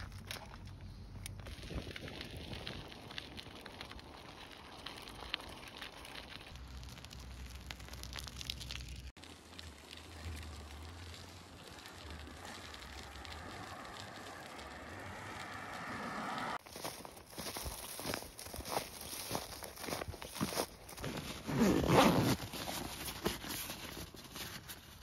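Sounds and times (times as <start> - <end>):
car tyre noise: 0.0 - 18.8
footsteps crunching on snow: 16.6 - 24.4.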